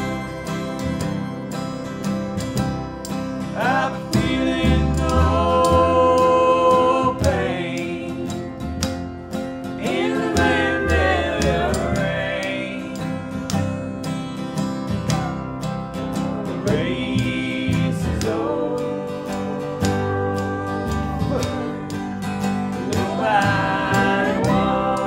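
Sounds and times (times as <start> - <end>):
clicking beat: 0.0 - 25.0
guitar: 0.0 - 25.0
sliding melody: 0.0 - 25.0
upright bass: 0.0 - 25.0
person singing: 3.6 - 8.6, 9.8 - 13.3, 15.0 - 15.6, 16.2 - 25.0.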